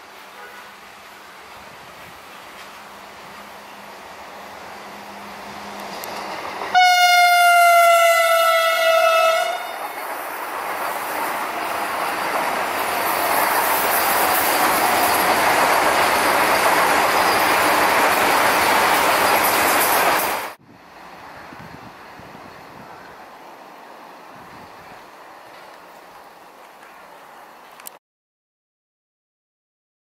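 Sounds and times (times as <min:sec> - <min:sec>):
train rushing past: 0:00.0 - 0:27.8
train horn blast: 0:00.3 - 0:00.8, 0:06.7 - 0:10.0.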